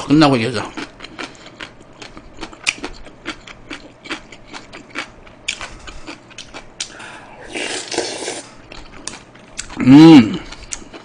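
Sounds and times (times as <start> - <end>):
chewing mouth clicks and smacks: 0.7 - 6.9
slurping broth from spoon: 7.4 - 8.5.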